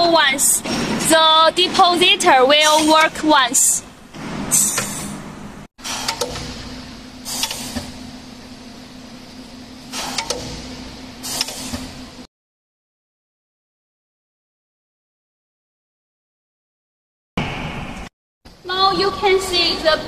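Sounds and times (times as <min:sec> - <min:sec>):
machine hum: 0:00.0 - 0:12.3
short hissing bursts: 0:07.2 - 0:07.8.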